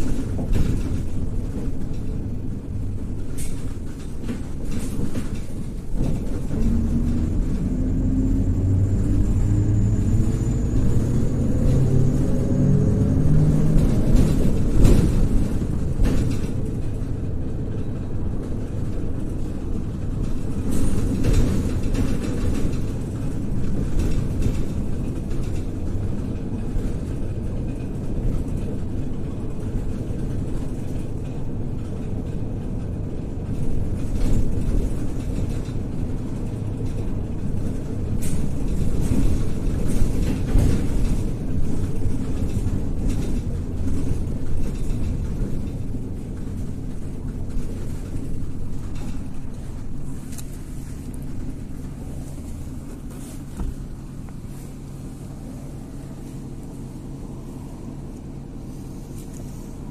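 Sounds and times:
bus engine and road rumble: 0.0s - 59.9s
knocks and rattles: 13.6s - 29.0s.

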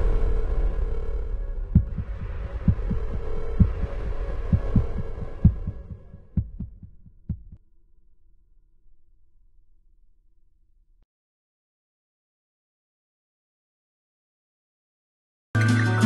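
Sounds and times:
deep heartbeat-like thumps: 0.0s - 7.6s
dark low drone: 0.0s - 11.0s.

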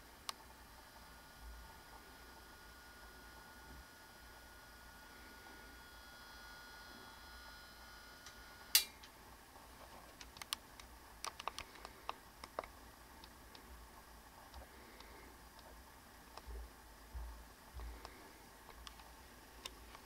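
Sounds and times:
faint high whine: 0.0s - 20.0s
sharp click: 8.8s - 9.2s
small ticks: 10.1s - 13.7s, 14.5s - 15.7s.

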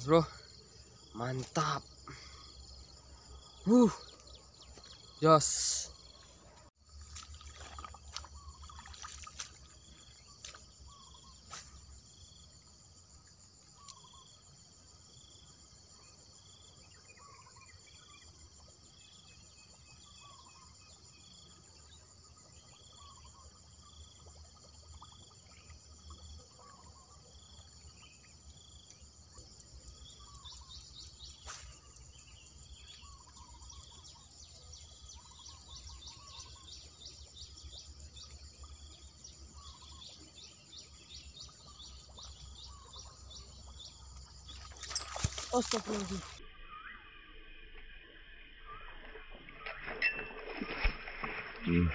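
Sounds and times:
high insect hiss: 6.9s - 17.7s, 28.0s - 47.0s
lower falling bird chirps: 44.4s - 51.9s.

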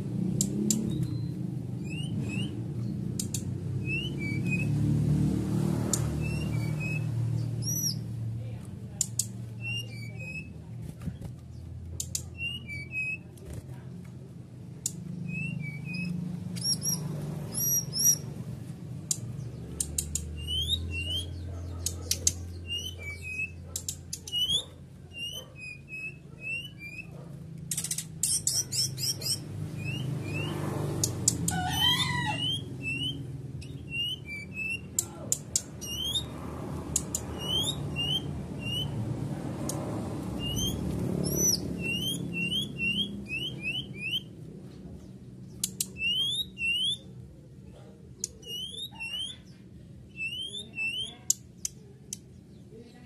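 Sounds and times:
sharp clicks: 0.4s - 1.1s, 3.1s - 3.5s, 19.0s - 20.4s, 27.6s - 28.6s, 31.0s - 31.6s, 34.9s - 35.9s, 36.9s - 37.4s, 45.5s - 46.2s
bird chirping upward: 0.4s - 8.2s, 9.0s - 10.7s, 11.5s - 13.3s, 14.8s - 47.2s, 48.2s - 52.7s
wavering bird call: 31.4s - 34.9s, 50.1s - 51.3s.

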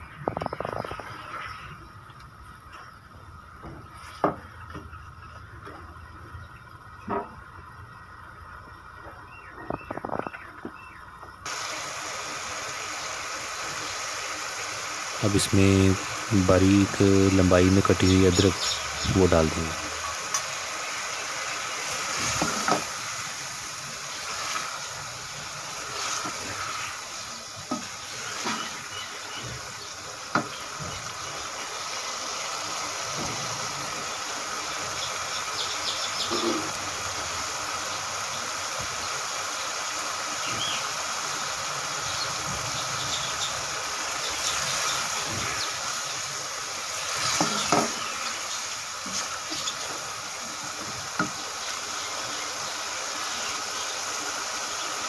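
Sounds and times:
lentils sizzling in a pot: 11.4s - 55.0s.

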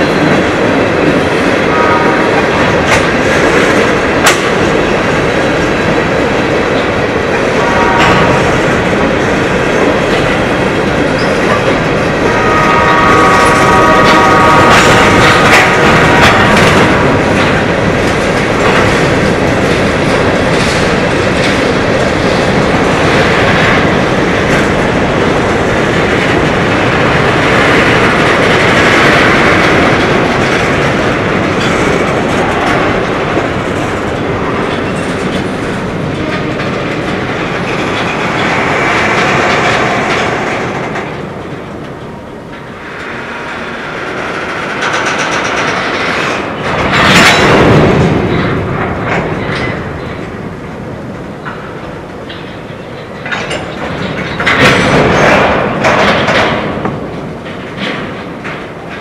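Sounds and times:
freight train rumble: 0.0s - 59.0s
train wheels clicking over rail joints: 0.0s - 59.0s.

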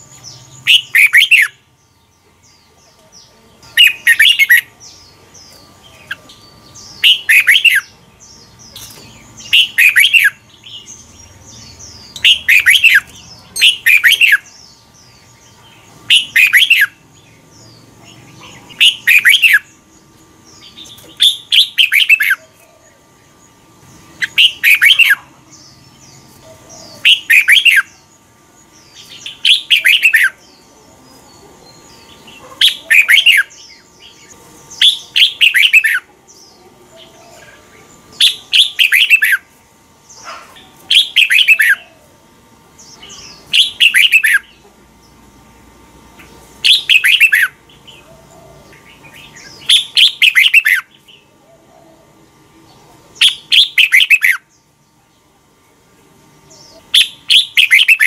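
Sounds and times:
bird whistled song: 0.2s - 1.7s, 3.7s - 15.3s, 16.1s - 17.0s, 18.4s - 19.8s, 20.6s - 22.6s, 24.2s - 28.0s, 28.9s - 30.4s, 32.6s - 36.1s, 38.1s - 39.5s, 40.2s - 42.0s, 42.8s - 44.6s, 46.6s - 51.3s, 53.2s - 54.6s, 56.5s - 58.0s.

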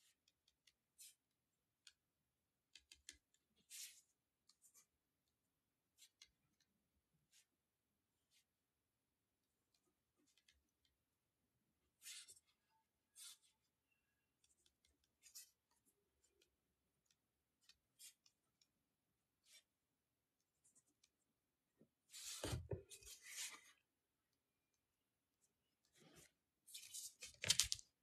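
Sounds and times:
paper notepad rustling: 26.7s - 27.8s.

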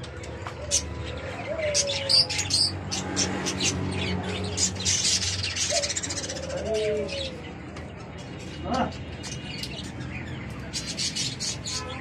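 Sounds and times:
doves cooing: 0.2s - 3.8s, 4.4s - 7.5s.

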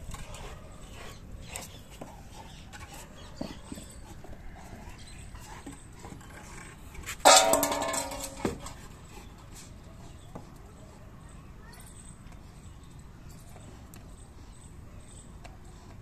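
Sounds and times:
branch scraping on concrete: 0.0s - 9.7s
metal bowl ringing: 7.3s - 8.4s.

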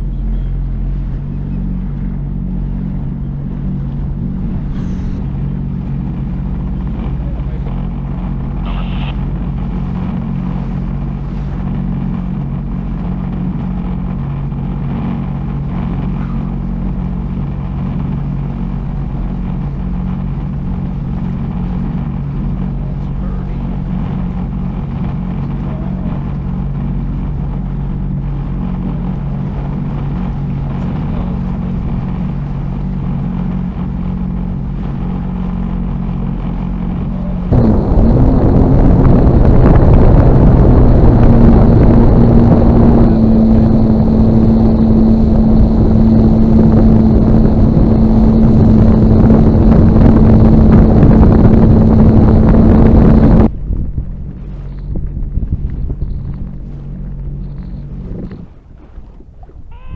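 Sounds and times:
jet ski engine: 0.0s - 59.9s
rush of wind and water: 0.0s - 59.9s.

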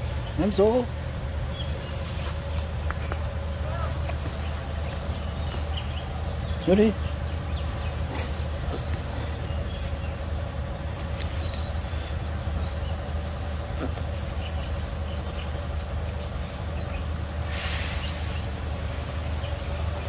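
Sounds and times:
insects buzzing: 0.0s - 20.0s
brief hiss: 17.4s - 18.5s.

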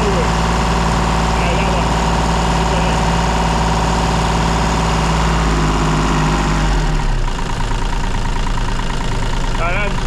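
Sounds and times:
diesel engine revs falling: 0.0s - 7.3s.

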